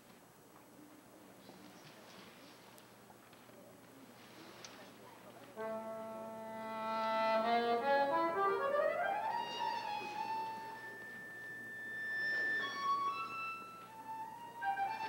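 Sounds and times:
accordion playing: 0:05.6 - 0:15.0.

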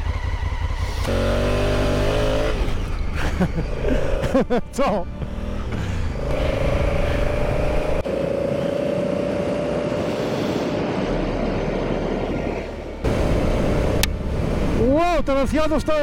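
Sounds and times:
motorcycle engine cruising: 0:00.0 - 0:14.9.

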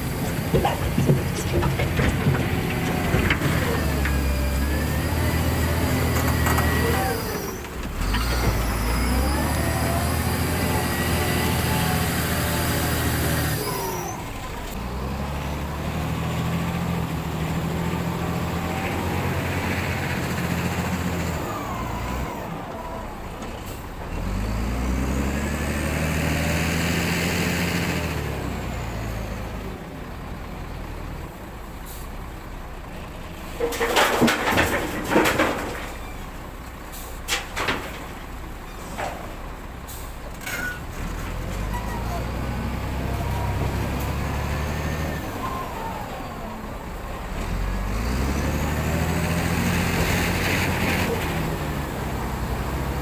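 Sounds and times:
diesel engine running under load: 0:00.0 - 0:53.0
bucket clattering against gravel: 0:00.2 - 0:04.0, 0:33.6 - 0:36.2.

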